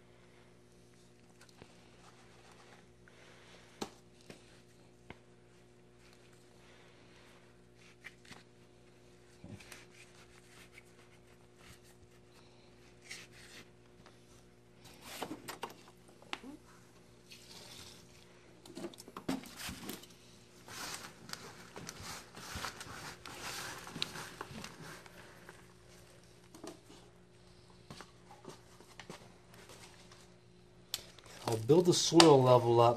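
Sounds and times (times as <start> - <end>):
faint steady hum: 0.0 - 32.9
plastic bag rustling and crinkling: 18.8 - 26.9
potting soil scooped from plastic bag: 20.6 - 26.2.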